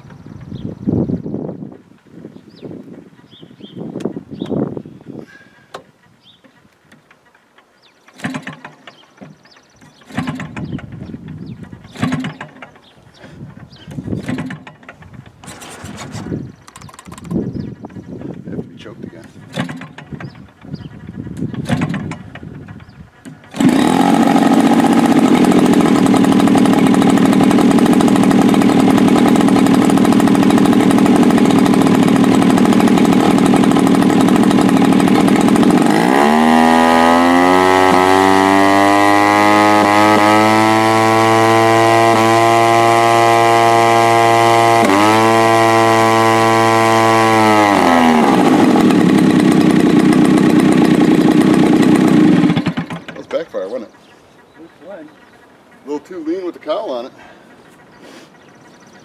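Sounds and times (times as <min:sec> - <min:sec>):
model airplane engine running: 0:23.5 - 0:53.1.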